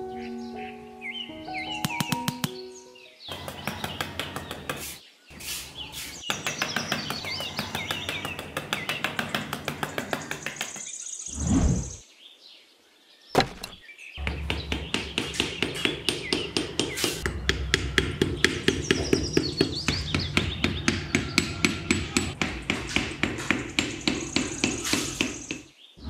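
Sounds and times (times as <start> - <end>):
hammer tapping wooden stakes: 1.8 - 2.6, 3.3 - 5.0, 5.6 - 10.9, 13.4 - 25.7.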